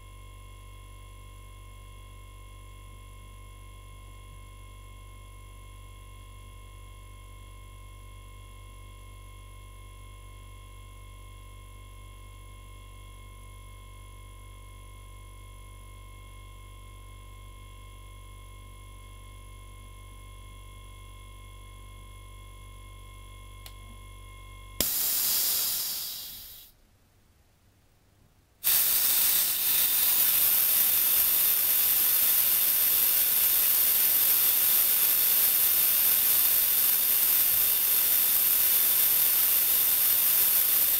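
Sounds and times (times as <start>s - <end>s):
compressor humming: 23.2s - 26.7s, 28.6s - 40.9s
compressed air hissing out: 24.8s - 26.7s, 28.6s - 40.9s
short hiss of air: 24.8s - 26.7s, 28.6s - 40.9s.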